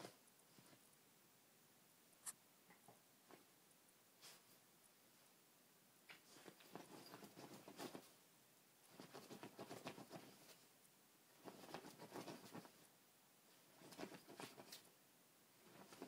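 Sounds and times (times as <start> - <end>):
dog paws scratching bedding: 6.2 - 8.2, 8.8 - 10.6, 11.3 - 12.8, 13.6 - 14.9, 15.6 - 16.0.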